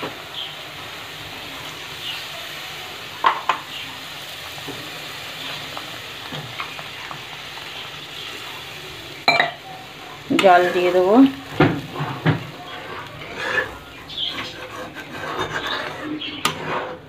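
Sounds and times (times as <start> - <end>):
curry sizzling in pan: 0.0 - 17.0
spatula stirring and scraping: 10.2 - 17.0.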